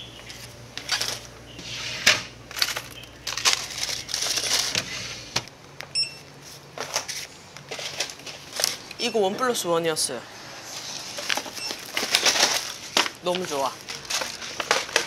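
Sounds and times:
short beep: 6.0 - 6.2
packaging and bottles knocking: 11.2 - 15.0.

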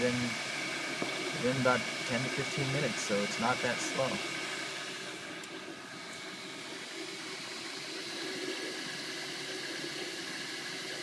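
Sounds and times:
fans whirring: 0.0 - 11.0
motors humming faintly: 0.0 - 11.0.

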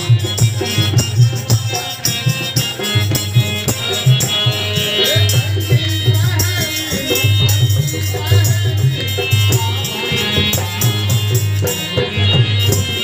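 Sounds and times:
drum beat: 0.0 - 10.0
harmonium chords: 0.0 - 13.0
man singing into microphone: 0.0 - 13.0
rattling hand percussion: 0.0 - 13.0.

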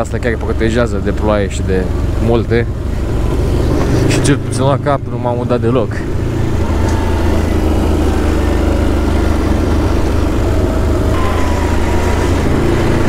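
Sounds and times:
atv engine running: 0.0 - 13.0.

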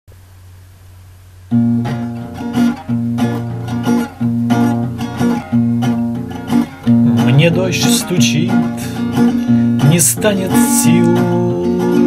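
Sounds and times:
acoustic guitar strumming: 1.5 - 12.0.

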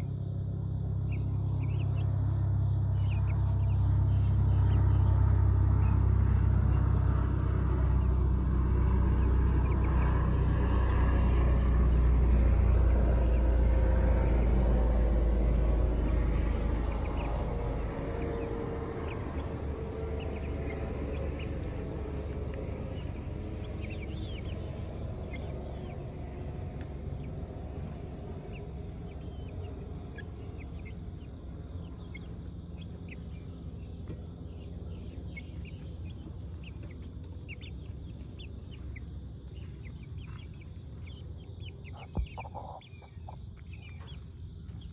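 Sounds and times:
low rumble: 0.0 - 44.2
chicks peeping: 0.7 - 44.9.

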